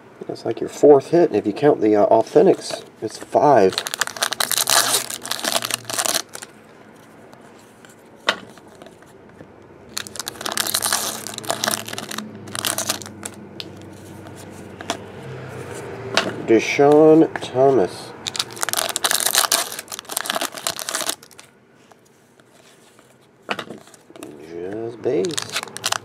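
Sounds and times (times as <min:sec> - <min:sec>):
wrapper crinkling: 0:02.6 - 0:06.5, 0:09.9 - 0:14.4, 0:18.2 - 0:21.5, 0:25.1 - 0:26.0
card pack wrapper tearing: 0:03.4 - 0:06.5, 0:09.9 - 0:13.9, 0:18.3 - 0:21.5, 0:25.1 - 0:26.0.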